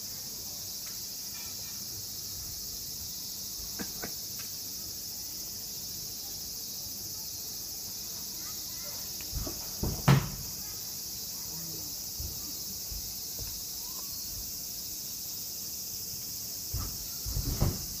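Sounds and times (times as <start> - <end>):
crickets chirping: 0.0 - 18.0
thumps on wooden floor: 9.4 - 10.4.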